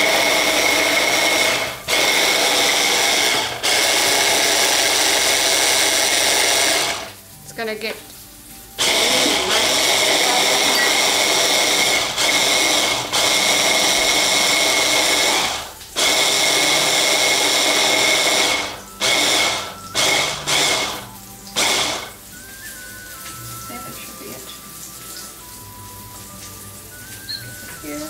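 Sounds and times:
stick blender chopping: 0.0 - 7.1, 8.8 - 21.0, 21.6 - 22.1.

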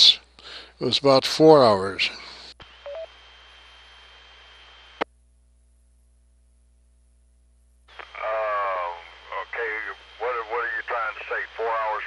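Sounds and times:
radio hiss with high tone: 0.0 - 5.0, 7.9 - 12.0
low mains hum: 0.0 - 12.0
voice over radio: 7.9 - 12.0.

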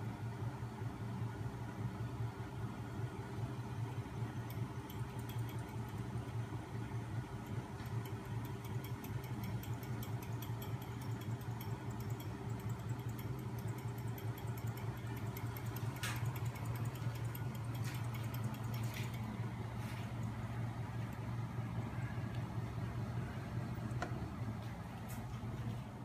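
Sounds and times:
small motor humming with fast ticking: 3.8 - 19.6.

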